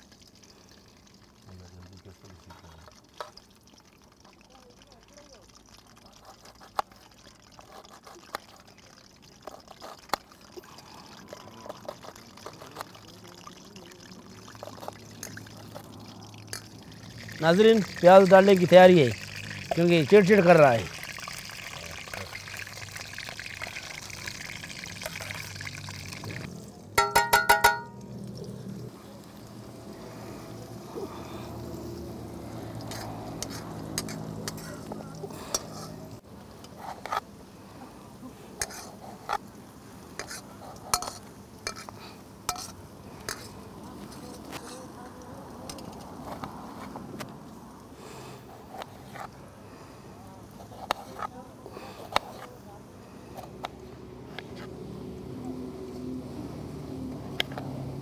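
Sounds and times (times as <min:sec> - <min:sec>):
onions sizzling in hot fat: 0:14.6 - 0:26.8, 0:27.6 - 0:36.6
knife tapping on metal tray: 0:27.0 - 0:28.0
faint steady hiss: 0:35.2 - 0:45.8.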